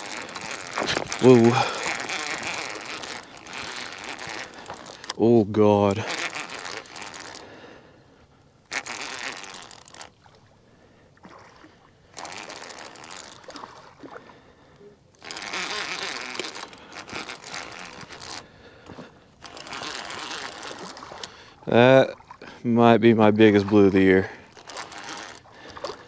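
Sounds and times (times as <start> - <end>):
fishing reel ticking: 0.0 - 7.5, 8.7 - 10.2, 12.1 - 13.8, 15.1 - 21.8, 23.7 - 26.0.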